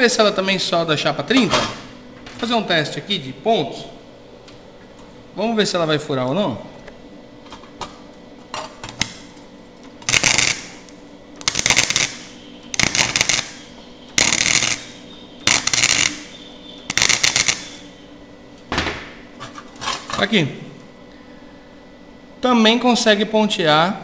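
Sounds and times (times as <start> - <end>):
crackling welding arc: 8.8 - 9.4, 10.0 - 18.1.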